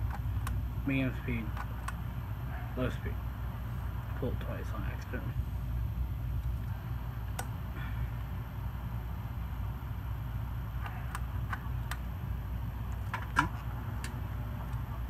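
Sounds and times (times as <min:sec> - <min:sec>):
ceiling fan motor hum: 0:00.0 - 0:15.0
fan switch clicks: 0:07.2 - 0:07.6.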